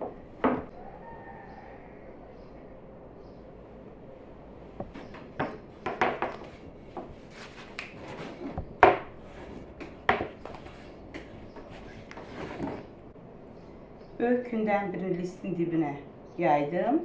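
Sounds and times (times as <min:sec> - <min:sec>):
rolling pin knocking on wooden board: 0:04.8 - 0:07.1, 0:08.6 - 0:09.1, 0:09.8 - 0:10.6.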